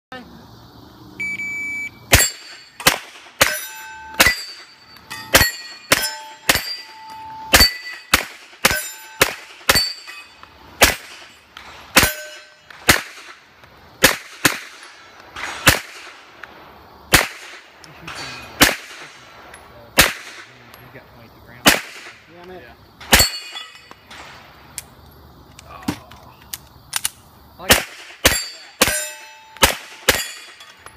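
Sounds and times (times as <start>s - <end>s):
pistol shots: 2.1s - 4.7s, 5.3s - 16.5s, 17.1s - 20.7s, 21.6s - 22.3s, 23.0s - 24.5s, 26.9s - 30.6s
steel targets ringing: 2.1s - 12.8s, 23.1s - 24.0s, 28.2s - 30.9s.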